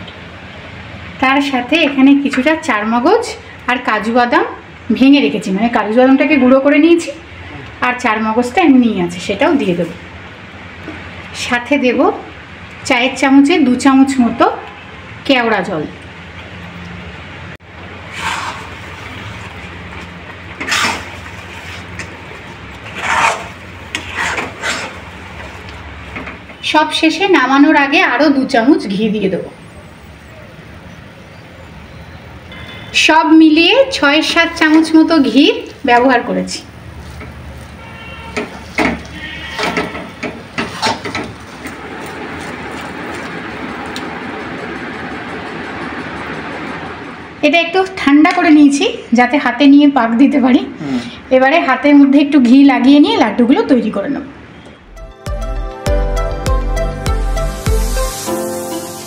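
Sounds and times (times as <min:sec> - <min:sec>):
spatula scraping a pan: 0:18.1 - 0:19.5, 0:20.6 - 0:22.1, 0:22.8 - 0:25.6, 0:37.0 - 0:41.7.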